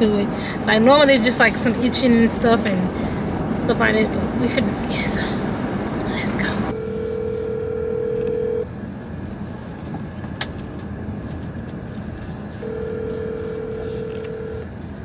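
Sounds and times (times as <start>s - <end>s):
low car cabin hum: 0.0s - 15.0s
phone ringback tone: 6.7s - 8.7s, 12.6s - 14.7s.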